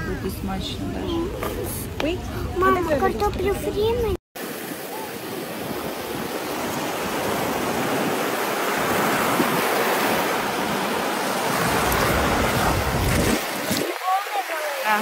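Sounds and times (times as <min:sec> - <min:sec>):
small waves washing over sand: 0:04.4 - 0:15.0.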